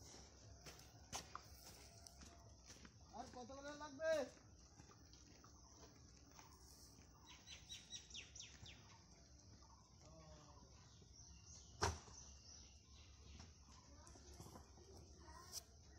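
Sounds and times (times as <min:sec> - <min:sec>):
faint bird chirps: 0:04.8 - 0:15.9.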